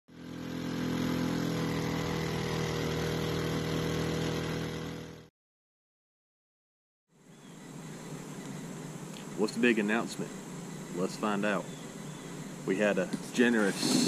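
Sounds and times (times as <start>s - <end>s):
boat motor running: 0.1s - 5.3s.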